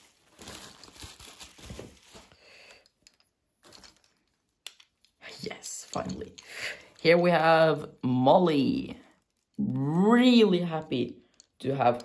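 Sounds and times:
packaging rustling: 0.0 - 4.5
light clicks of toy handling: 2.1 - 5.2.

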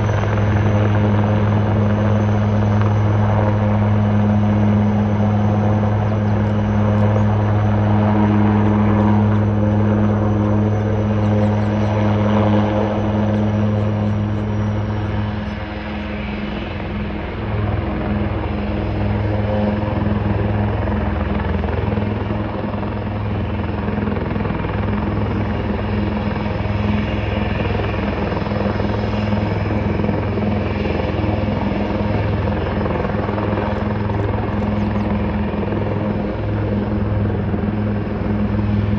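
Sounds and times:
helicopter rotor drone: 0.0 - 38.9
high turbine whine: 0.0 - 38.9.

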